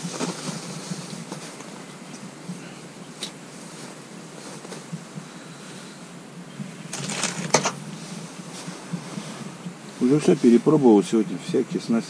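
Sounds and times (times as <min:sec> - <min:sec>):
handling clicks and rustles: 0:00.0 - 0:05.2, 0:06.8 - 0:07.9
low steady hum: 0:00.0 - 0:12.0.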